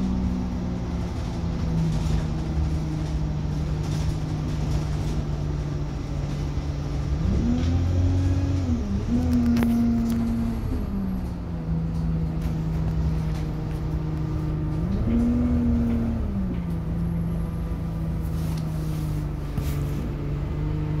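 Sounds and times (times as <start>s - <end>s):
bus engine drone: 0.0s - 21.0s.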